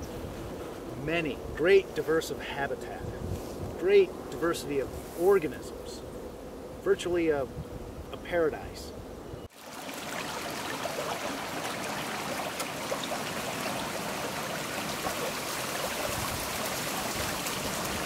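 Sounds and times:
stream water rushing: 9.5s - 18.0s.

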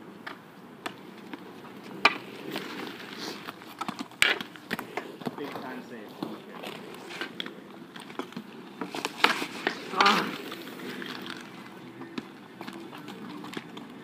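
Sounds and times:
inline skate wheels rolling: 0.0s - 14.0s.

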